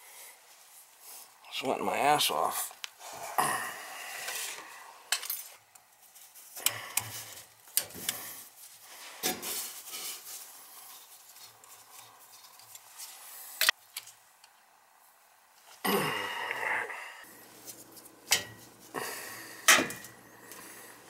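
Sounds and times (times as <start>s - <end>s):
scraping and rustling: 5.4s - 13.3s.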